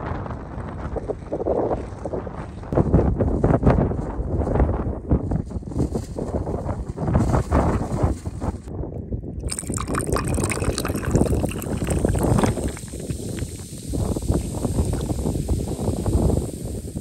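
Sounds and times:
wind buffeting microphone: 0.0s - 17.0s
liquid pouring into water and ice: 9.4s - 15.3s.

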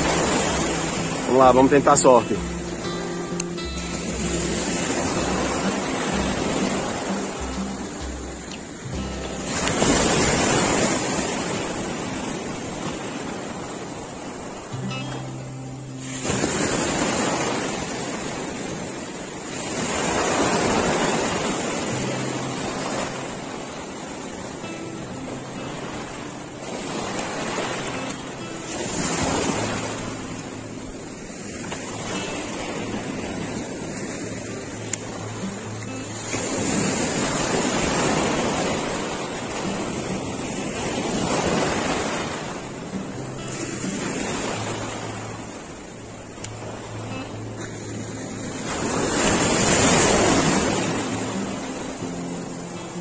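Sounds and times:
sea surf washing in: 0.0s - 53.0s.

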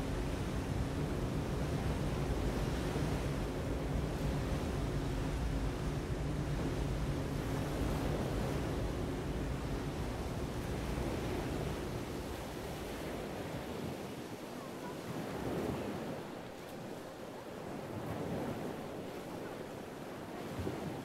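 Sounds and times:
low steady hum: 0.0s - 14.1s
lake water rushing: 0.0s - 21.0s
wind: 0.0s - 21.0s.

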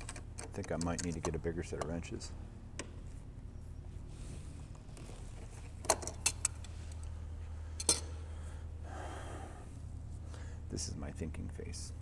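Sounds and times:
steady low hum: 0.0s - 12.0s
metal wrenches clinking: 7.8s - 8.1s.

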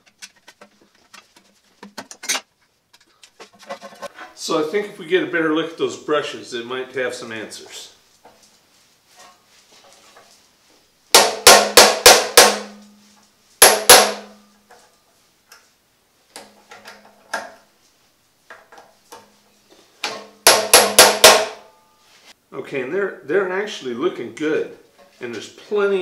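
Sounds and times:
hammer striking screwdriver: 20.5s - 21.6s.

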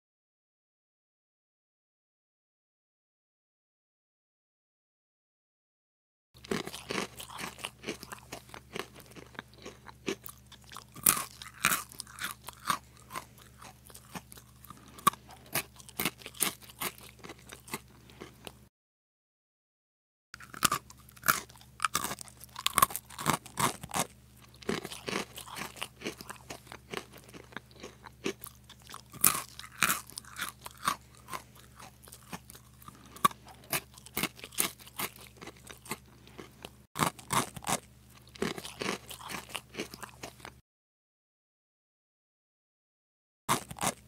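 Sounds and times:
crunching crispy food: 6.4s - 18.6s, 20.4s - 40.6s, 43.5s - 44.0s.

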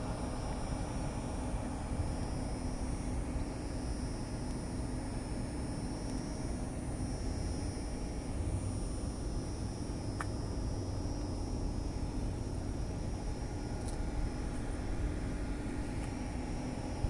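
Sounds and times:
faint high whine: 0.0s - 17.0s
faint ticks: 10.2s - 10.4s.

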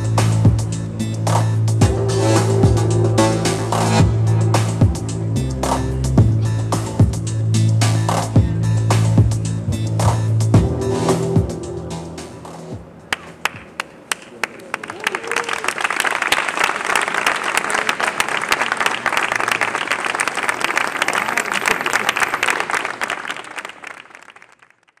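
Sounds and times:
audience applause: 13.1s - 25.0s.

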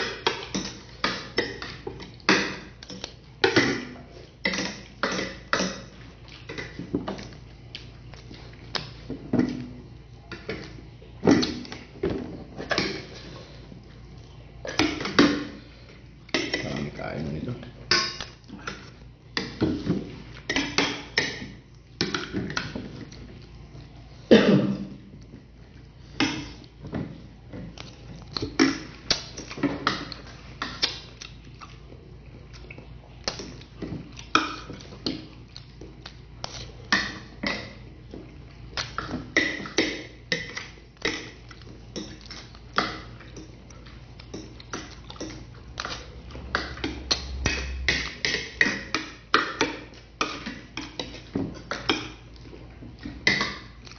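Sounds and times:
chewing and lip-smacking: 0.0s - 9.1s, 12.7s - 16.9s, 25.2s - 53.9s.

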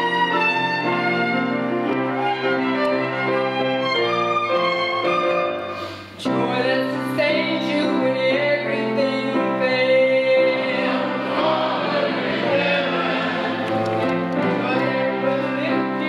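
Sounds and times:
violin and strings: 0.0s - 16.0s
choir singing: 9.9s - 16.0s.

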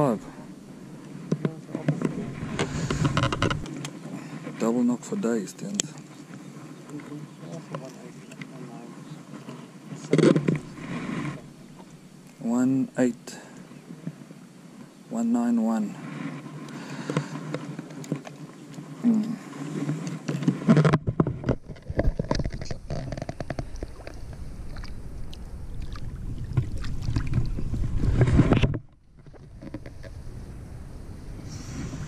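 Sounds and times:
low rumble from handling: 0.0s - 4.0s, 19.1s - 32.0s
water sloshing and splashing: 16.8s - 30.1s.

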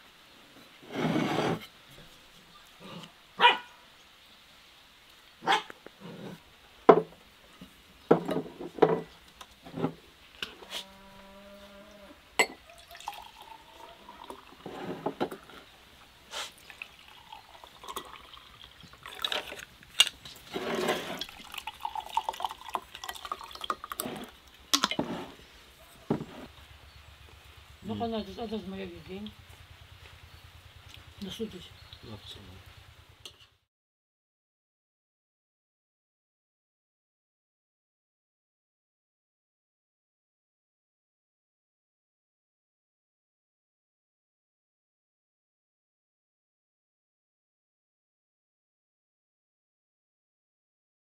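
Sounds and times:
glass clinks: 12.4s - 13.4s
drink pouring into glass: 12.4s - 15.6s, 16.5s - 25.1s.

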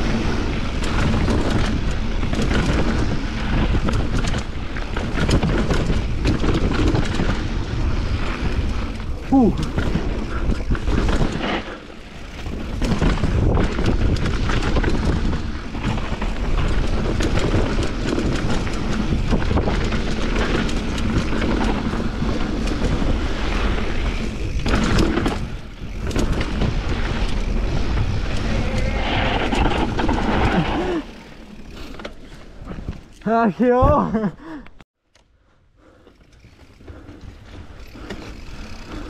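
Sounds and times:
bike rattling over bumps: 0.0s - 34.6s, 35.8s - 39.0s
wind buffeting microphone: 12.0s - 31.6s.

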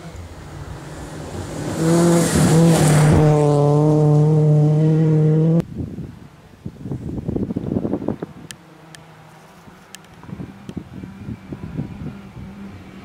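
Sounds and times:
rally car engine at high revs: 0.0s - 5.6s, 10.2s - 13.0s
distant uneven engine noise: 8.5s - 13.0s.

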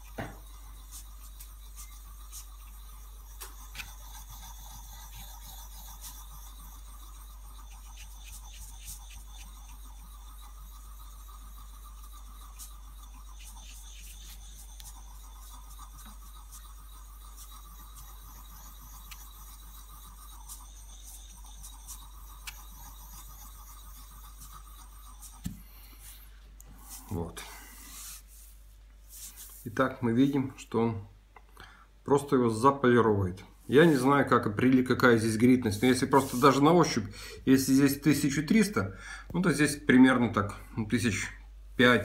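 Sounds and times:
chisel scraping on wet whetstone: 0.0s - 27.2s, 33.7s - 37.0s.

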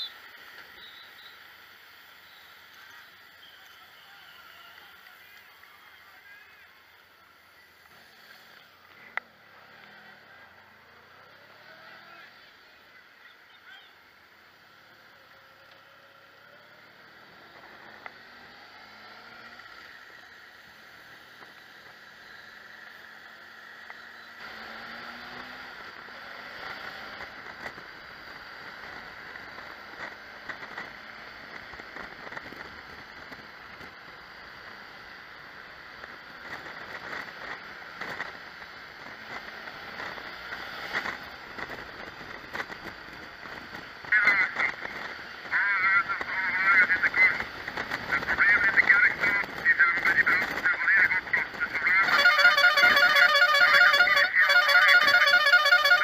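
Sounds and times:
motorcycle engine hum: 0.0s - 56.0s
wind and road noise: 0.0s - 56.0s
warbling horn: 52.0s - 56.0s.

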